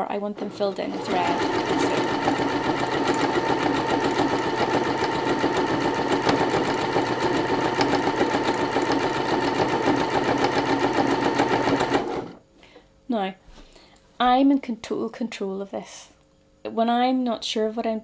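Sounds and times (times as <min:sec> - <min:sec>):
sewing machine running: 0:00.4 - 0:12.4.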